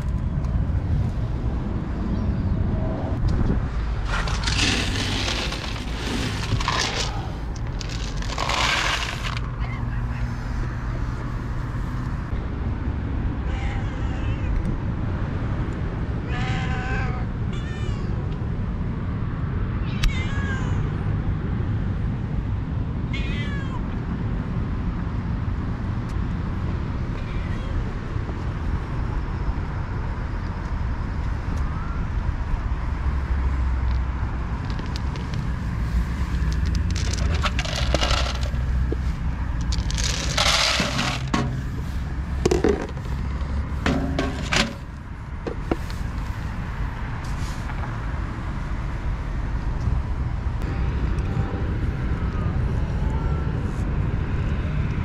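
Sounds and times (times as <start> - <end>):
rustling and clattering: 4.0 - 9.6, 34.5 - 46.3
cats meowing: 13.4 - 14.6, 16.2 - 18.2, 19.8 - 20.9, 23.1 - 23.9, 27.1 - 27.9.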